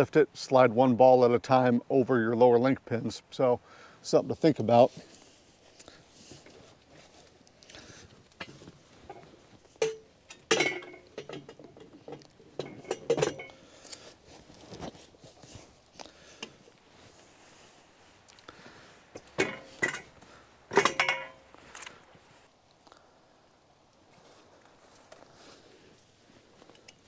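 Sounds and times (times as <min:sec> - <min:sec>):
metal pins clanking into hitch hooks: 0:08.4 - 0:14.2, 0:19.2 - 0:22.0.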